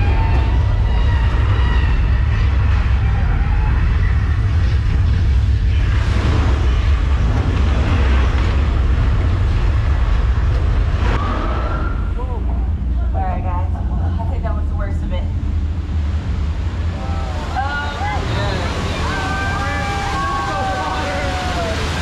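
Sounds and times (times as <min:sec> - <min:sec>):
deep rumble: 0:00.0 - 0:22.0
broad hissing rush: 0:15.4 - 0:22.0.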